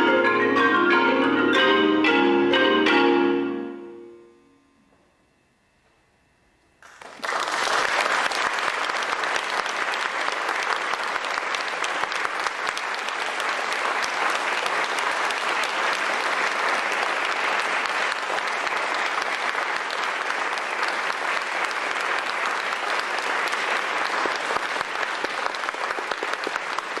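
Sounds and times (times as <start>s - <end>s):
audience applause: 6.8s - 27.0s.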